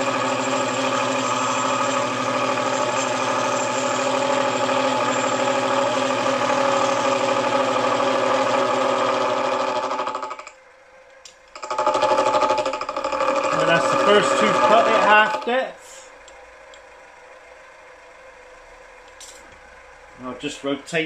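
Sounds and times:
milling machine running: 0.0s - 10.5s, 11.5s - 19.2s.

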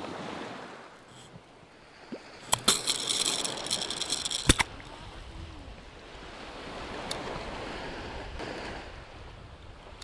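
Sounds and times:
waves washing up sandy shore: 1.7s - 10.0s
fast clatter of clicks: 2.5s - 4.7s.

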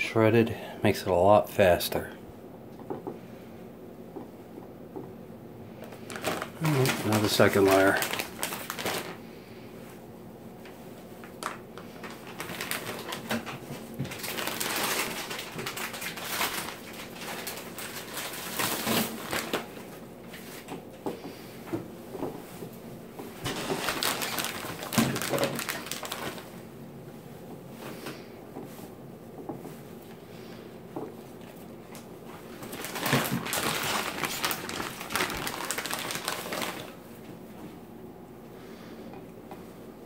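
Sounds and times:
plastic packets crinkling: 5.8s - 9.2s, 11.2s - 20.7s, 23.4s - 26.7s, 31.4s - 37.1s.

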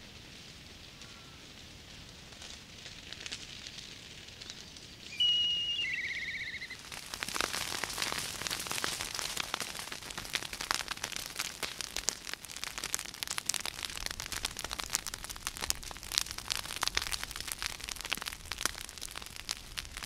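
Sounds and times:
bushfire crackling: 0.0s - 20.0s
bird whistle and trill: 5.1s - 6.8s.

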